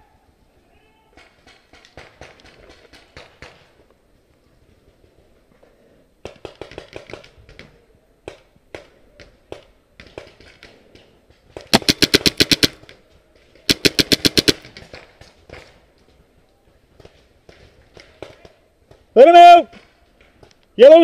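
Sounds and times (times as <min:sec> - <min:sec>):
paintball marker rapid firing: 0:06.2 - 0:07.4, 0:11.6 - 0:12.9, 0:13.7 - 0:15.1.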